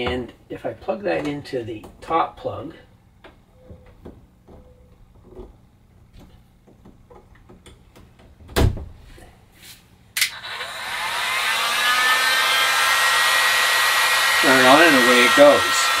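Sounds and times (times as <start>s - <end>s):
heat gun fan whining: 10.2s - 16.0s.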